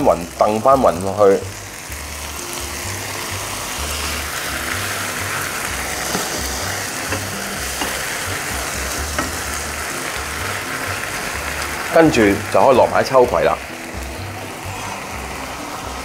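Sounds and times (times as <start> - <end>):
background music with bass line: 0.0 - 16.0
noodles sizzling in a wok: 0.0 - 16.0
spatula tapping a pan: 6.0 - 8.1, 9.1 - 9.5.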